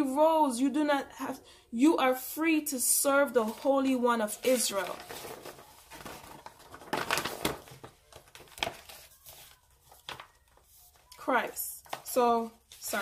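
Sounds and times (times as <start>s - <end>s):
rustling and crinkling handling noise: 3.2s - 13.0s.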